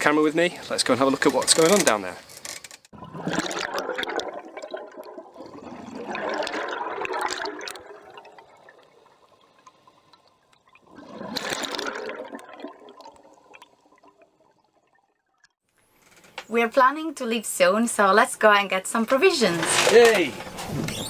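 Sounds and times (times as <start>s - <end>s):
rushing splashing water: 3.0s - 9.2s, 10.8s - 14.2s.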